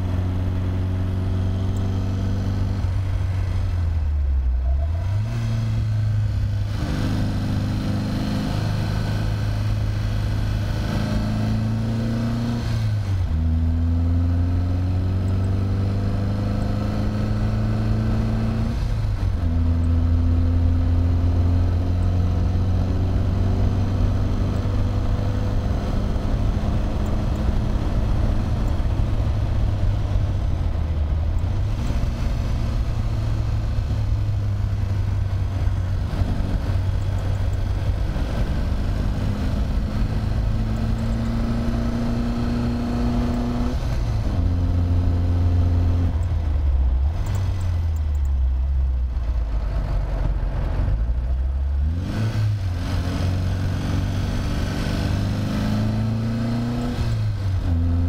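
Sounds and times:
car engine pulling hard: 0.0 - 58.0.

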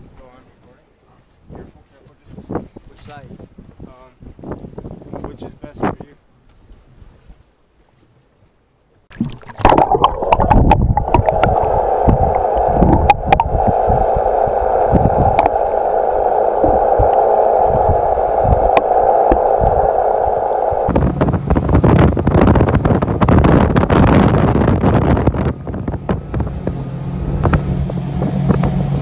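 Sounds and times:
wind buffeting microphone: 1.4 - 6.2, 9.7 - 29.0
underwater knocks and gurgles: 9.1 - 20.0
underwater rushing hum: 9.1 - 29.0.

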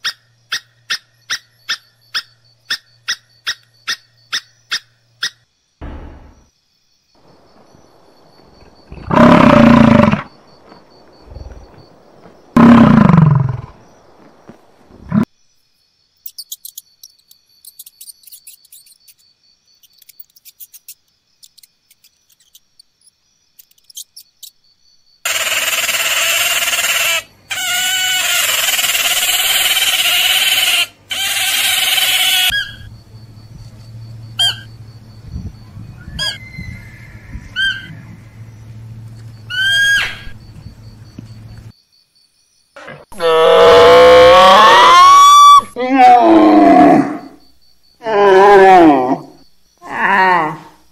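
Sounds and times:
low hum: 5.8 - 6.5, 37.3 - 39.5
soft squeaks and chirps: 16.2 - 24.6
beaver squealing: 39.5 - 40.2.

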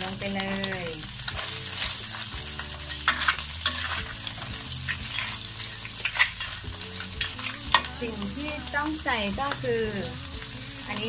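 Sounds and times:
food sizzling in a pan: 0.0 - 11.0
spatula scraping and knocking pan: 1.3 - 7.9.

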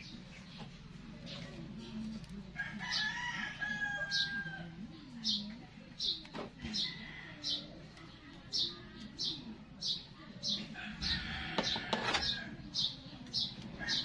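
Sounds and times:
rooster crowing: 2.6 - 4.7, 10.8 - 12.5.

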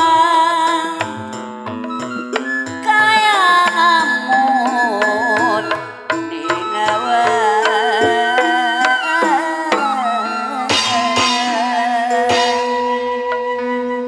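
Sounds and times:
hand drum strokes: 1.0 - 13.4
wavering organ lead melody: 1.1 - 14.0.

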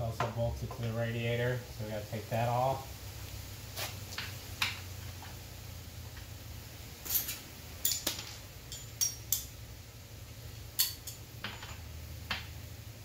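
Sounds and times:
metal tool clinking on bolts: 7.1 - 9.5.

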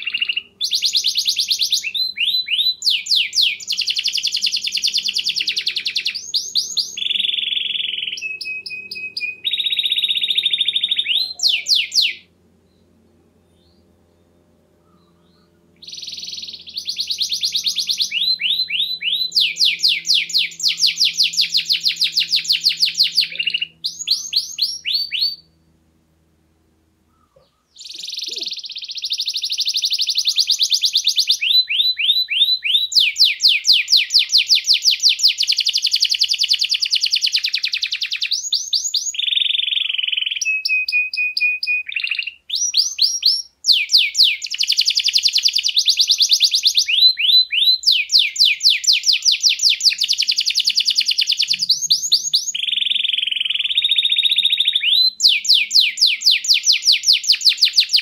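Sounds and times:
canary trilling: 0.0 - 12.3, 14.8 - 25.6, 27.2 - 58.0.

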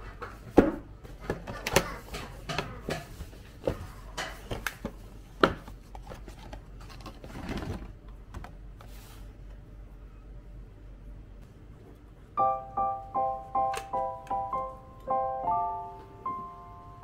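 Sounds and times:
crinkly plastic rustle: 5.8 - 7.9.

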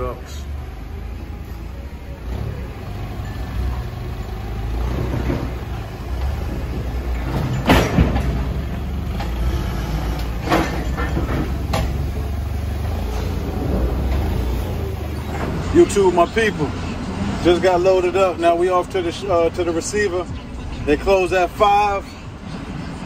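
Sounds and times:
forklift engine running: 0.0 - 23.0
loud metal clank: 7.1 - 9.4, 10.1 - 12.2.

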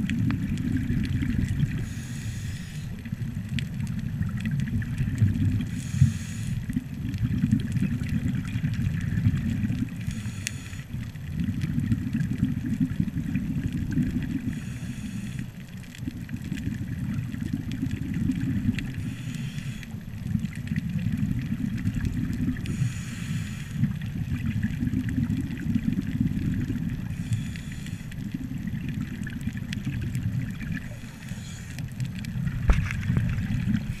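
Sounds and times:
low underwater rumble: 0.0 - 34.0
diver breathing through regulator: 1.6 - 3.0, 5.6 - 6.8, 10.0 - 11.0, 14.4 - 15.6, 18.8 - 20.0, 22.6 - 24.0, 27.0 - 28.3, 30.7 - 32.0, 33.7 - 34.0.

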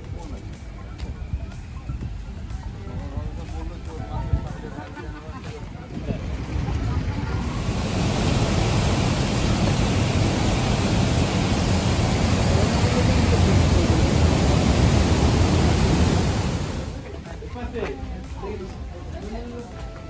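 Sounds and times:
waterfall rushing: 7.0 - 17.0.

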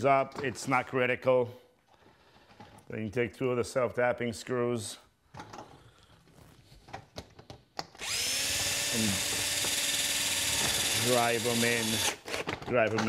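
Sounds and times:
power drill driving screw into metal: 7.9 - 12.5.

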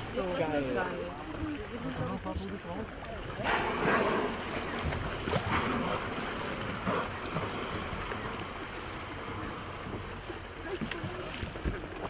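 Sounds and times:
sea noise: 0.0 - 12.0
whales blowing: 3.3 - 10.6.

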